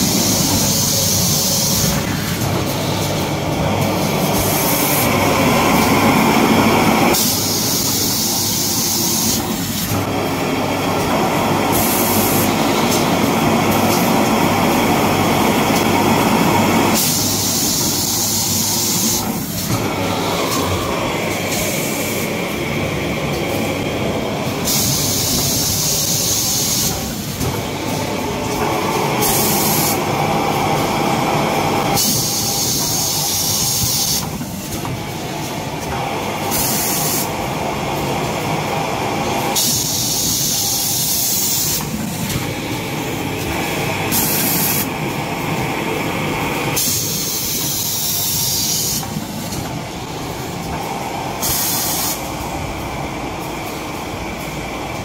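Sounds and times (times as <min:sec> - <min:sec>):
factory machinery running: 0:00.0 - 0:55.0
pneumatic hissing: 0:51.4 - 0:52.3.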